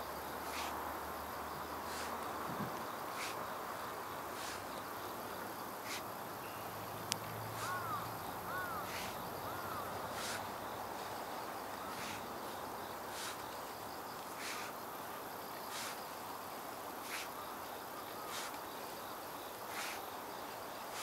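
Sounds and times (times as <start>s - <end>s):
insects chirring: 0.0s - 21.0s
hoe chopping and scraping soil: 0.4s - 0.8s, 1.9s - 3.4s, 4.4s - 4.7s, 5.8s - 6.0s, 7.6s - 7.9s, 8.6s - 10.5s, 11.9s - 12.3s, 13.1s - 13.4s, 14.4s - 14.7s, 15.7s - 16.0s, 17.0s - 17.3s, 18.3s - 18.6s, 19.7s - 20.0s.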